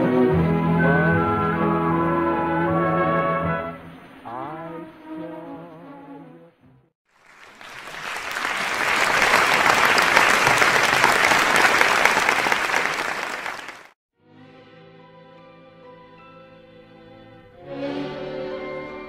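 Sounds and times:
crowd applauding: 7.1s - 14.0s.

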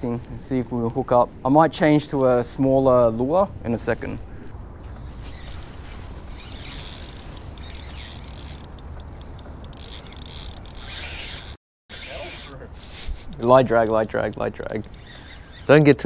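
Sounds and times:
fishing reel gears whirring: 5.3s - 5.7s, 6.3s - 16.0s.

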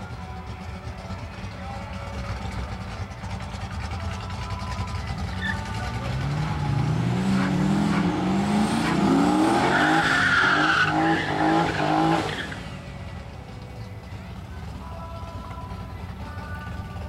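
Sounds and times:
drag car engine revving: 0.0s - 16.2s
tyres squealing: 5.2s - 5.9s, 8.8s - 12.7s.

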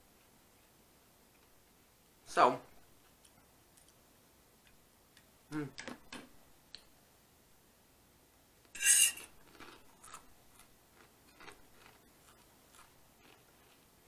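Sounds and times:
fork scraping a plate: 8.8s - 9.8s.

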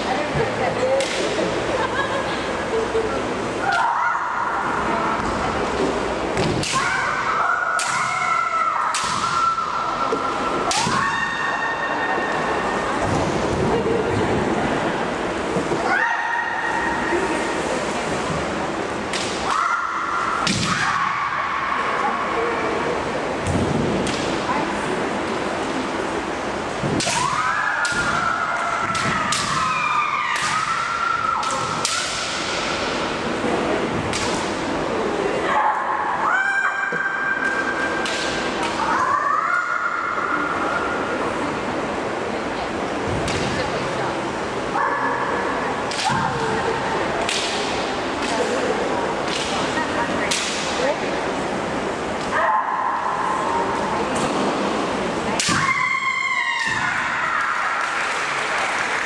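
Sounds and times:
women shouting: 35.4s - 37.8s.

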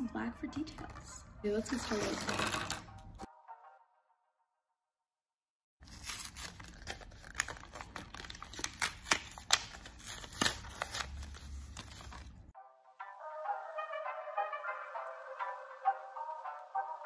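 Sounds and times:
blister pack tearing open: 5.8s - 12.4s.

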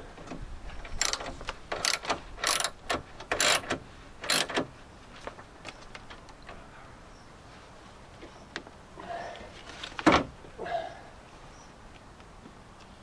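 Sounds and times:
ratchet wrench clicking: 1.0s - 4.6s.

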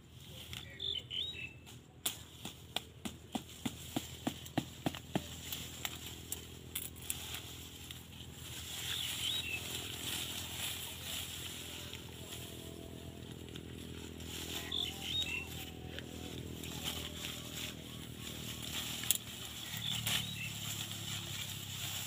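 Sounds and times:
rustling of dry grass: 0.0s - 22.0s.

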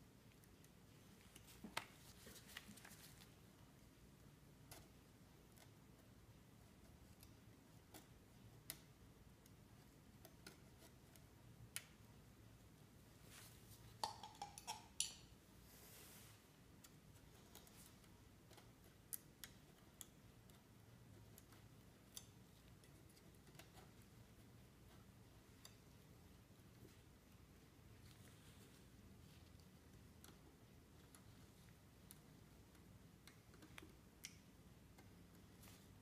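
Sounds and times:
small clicks and taps on metal: 7.0s - 12.0s, 16.8s - 24.2s.

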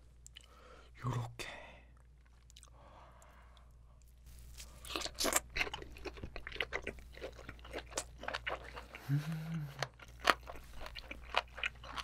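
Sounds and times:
chewing: 4.6s - 12.0s.

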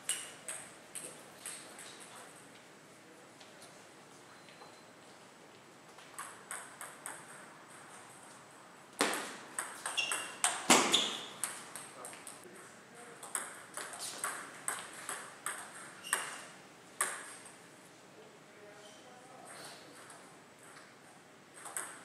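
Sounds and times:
table tennis ball clicks: 21.6s - 22.0s.

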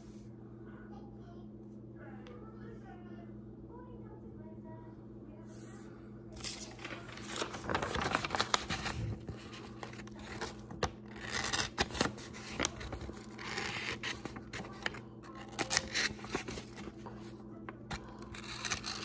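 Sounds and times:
blade scraping paper: 6.4s - 17.3s, 17.9s - 19.0s.

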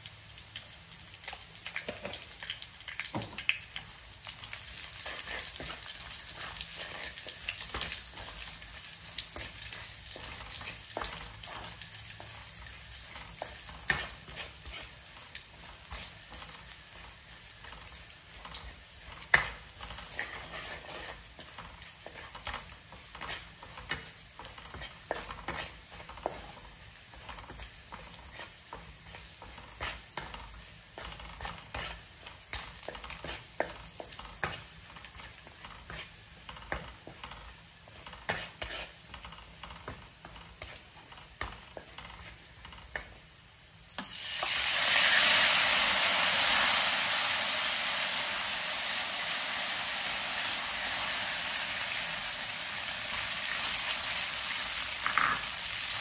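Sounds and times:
garlic sizzling in oil: 0.0s - 56.0s
spatula scraping and knocking pan: 4.3s - 43.3s.

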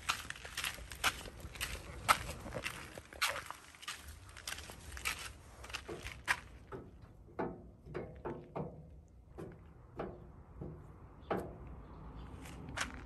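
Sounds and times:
footsteps on concrete: 0.0s - 6.6s.

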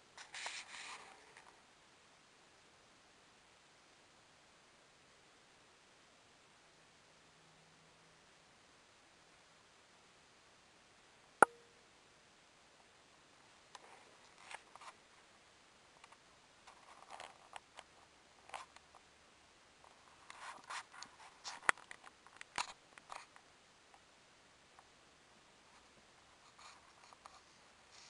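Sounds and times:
light clicks and scrapes: 0.2s - 1.6s, 13.7s - 15.0s, 16.0s - 19.0s, 19.8s - 23.5s, 25.7s - 28.0s.

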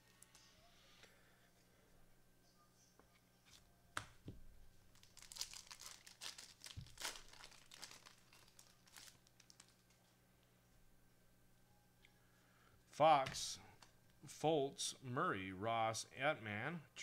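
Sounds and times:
wrapper tearing and crinkling: 4.9s - 10.0s.

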